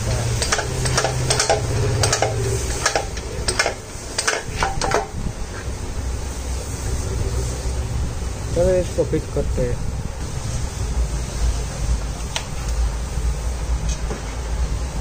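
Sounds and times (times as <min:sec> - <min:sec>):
metallic ratchet clicks and rattles: 0:00.0 - 0:05.1.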